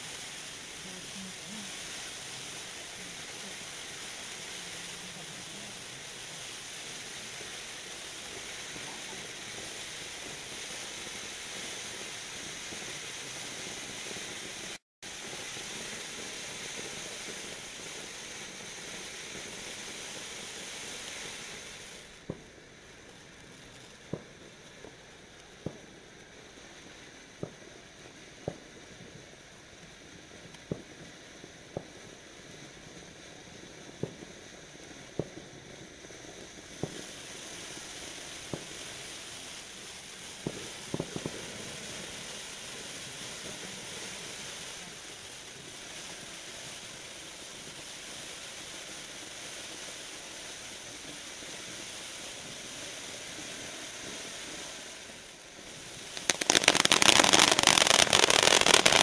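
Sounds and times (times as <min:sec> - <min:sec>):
firework fountain hissing: 0:00.0 - 0:59.0
firework pops: 0:06.8 - 0:22.6, 0:23.3 - 0:26.0, 0:27.4 - 0:27.7, 0:28.3 - 0:32.2, 0:33.9 - 0:38.9, 0:40.2 - 0:42.4, 0:56.0 - 0:59.0.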